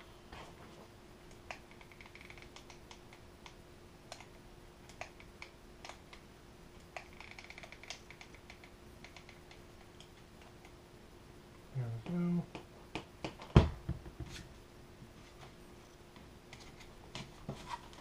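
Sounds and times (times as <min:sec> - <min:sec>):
faint steady hum: 0:00.0 - 0:18.0
glue gun clicks and taps: 0:01.3 - 0:04.3
rapid faint clicking: 0:06.8 - 0:10.8.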